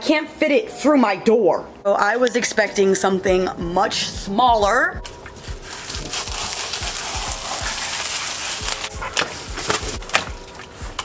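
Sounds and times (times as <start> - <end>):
plastic crinkling: 5.1 - 11.0
plastic wrap tearing: 5.1 - 11.0.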